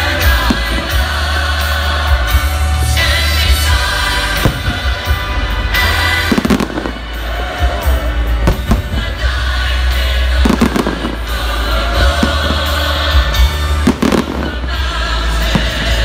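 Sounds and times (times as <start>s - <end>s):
music playing: 0.0s - 16.0s
fireworks booming: 4.2s - 7.0s, 8.4s - 9.2s, 10.4s - 11.3s.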